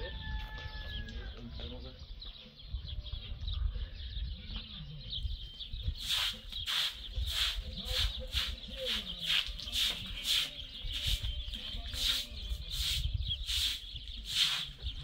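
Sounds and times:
broom sweeping concrete: 0:06.0 - 0:15.0.

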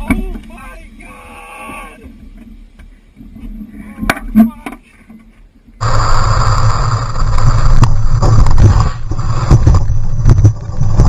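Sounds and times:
car engine drone: 0:05.8 - 0:11.0.

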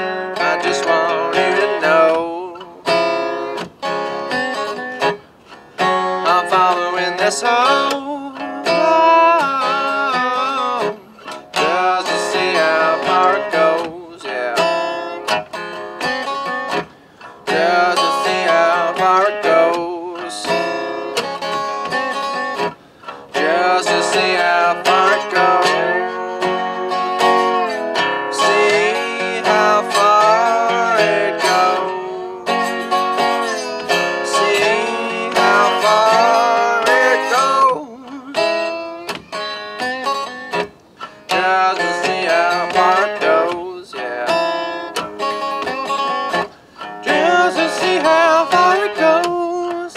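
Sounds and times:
man singing blues: 0:00.0 - 0:05.2, 0:05.8 - 0:15.4, 0:16.0 - 0:49.9
resonator guitar playing: 0:00.0 - 0:49.9.

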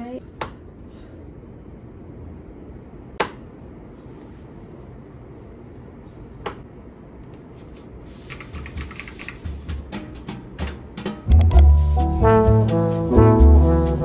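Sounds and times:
low steady hum: 0:00.0 - 0:08.0
typing on computer keyboard: 0:08.3 - 0:09.4, 0:11.3 - 0:11.6.

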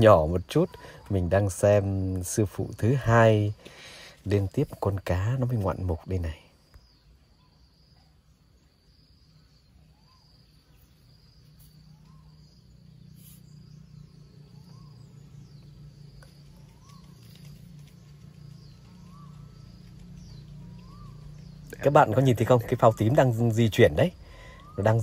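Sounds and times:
low hum: 0:08.2 - 0:24.9.

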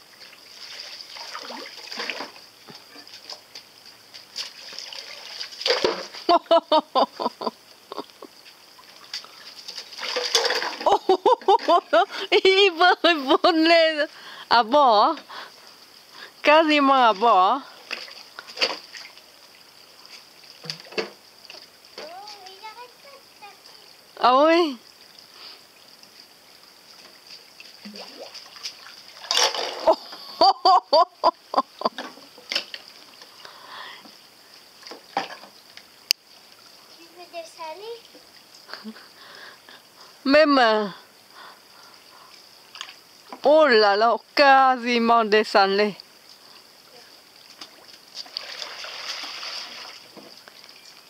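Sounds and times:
water splashing: 0:00.0 - 0:24.7, 0:26.8 - 0:33.9, 0:45.5 - 0:51.0
sharp splash: 0:00.5 - 0:02.4, 0:04.3 - 0:06.3, 0:09.1 - 0:11.0, 0:27.8 - 0:29.9, 0:47.7 - 0:50.1
toy kayak splashing on water: 0:04.3 - 0:06.4, 0:09.1 - 0:12.6, 0:27.9 - 0:29.9, 0:47.6 - 0:50.4.

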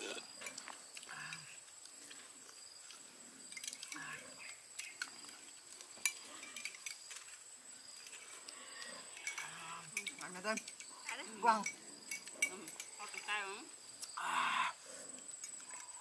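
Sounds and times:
glassware and utensils clinking: 0:09.2 - 0:13.3.

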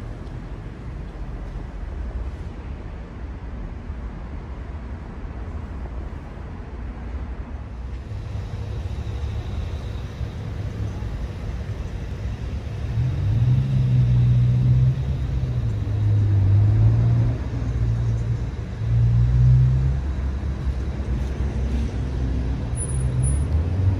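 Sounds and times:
car engines humming: 0:04.9 - 0:23.9.

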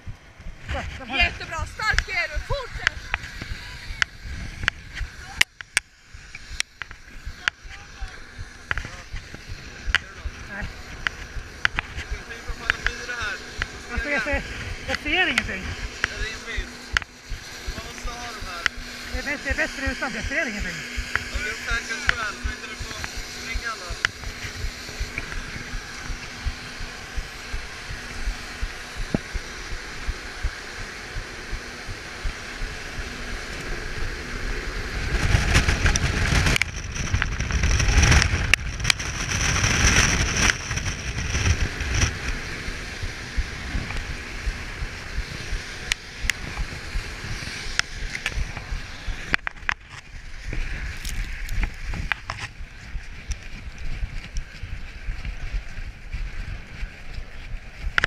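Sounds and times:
rushing noise: 0:06.0 - 0:58.0
footsteps in snow: 0:43.2 - 0:58.0.

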